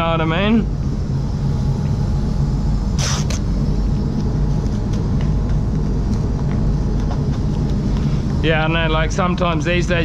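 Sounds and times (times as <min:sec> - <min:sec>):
ventilation fans rumbling: 0:00.0 - 0:10.0
hissing bursts: 0:02.9 - 0:03.5.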